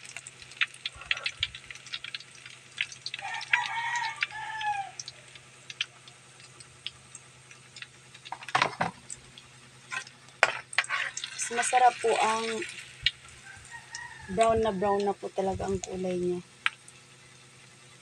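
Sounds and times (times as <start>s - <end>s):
rooster crowing: 3.2s - 5.3s, 13.4s - 15.0s.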